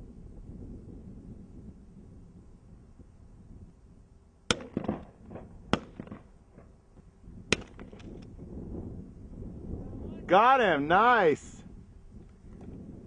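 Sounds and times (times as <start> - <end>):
gunshots: 4.5 - 6.3.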